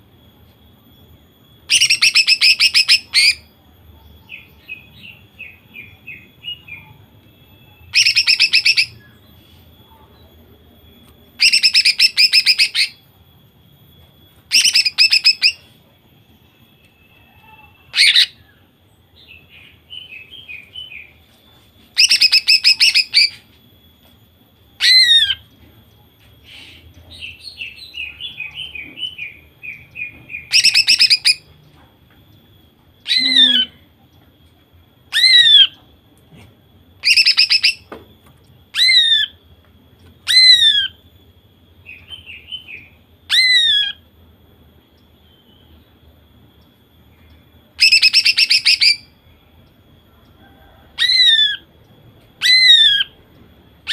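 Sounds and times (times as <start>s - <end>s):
bird twittering: 1.6s - 3.5s, 7.5s - 9.2s, 11.4s - 13.0s, 14.5s - 15.7s, 22.0s - 23.5s, 26.4s - 31.5s, 33.0s - 33.8s, 37.0s - 37.9s, 40.2s - 41.0s, 47.8s - 49.2s
bird calling trilled notes: 1.6s - 3.6s, 4.3s - 9.2s, 11.2s - 13.2s, 14.4s - 21.1s, 22.0s - 23.6s, 24.8s - 25.6s, 26.4s - 31.6s, 33.0s - 34.1s, 35.0s - 35.9s, 37.0s - 37.9s, 38.7s - 39.4s, 40.2s - 41.1s, 47.1s - 49.4s, 51.0s - 53.2s.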